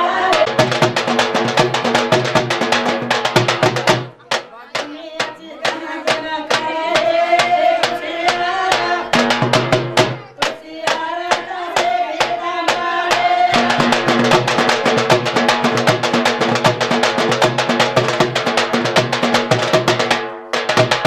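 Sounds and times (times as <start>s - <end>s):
women singing: 0.0s - 1.0s, 4.6s - 16.0s
percussion beat: 0.0s - 21.0s.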